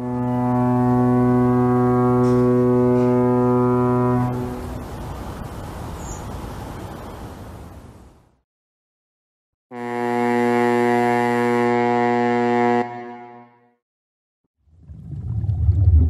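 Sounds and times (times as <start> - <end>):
ship's horn blast: 0.0 - 4.8, 9.7 - 13.8.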